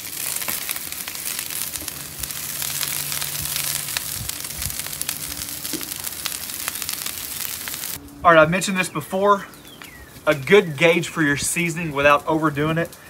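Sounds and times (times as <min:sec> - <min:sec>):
vegetables sizzling on griddle: 0:00.0 - 0:08.0.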